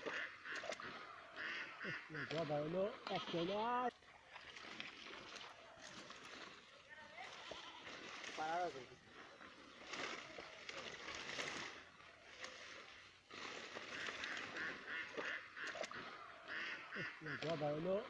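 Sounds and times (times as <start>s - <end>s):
waterfowl honking: 0.0s - 4.0s, 9.8s - 18.0s
plastic tarp rustling: 9.8s - 12.7s.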